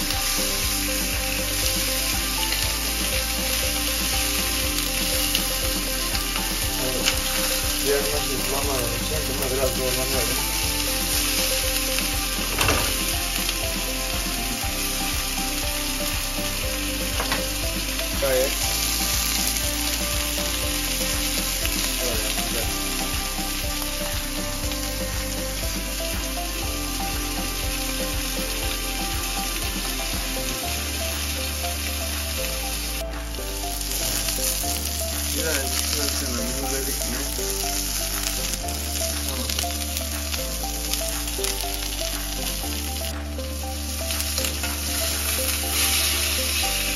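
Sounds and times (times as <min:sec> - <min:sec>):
steaks sizzling in oil: 0:00.0 - 0:46.9.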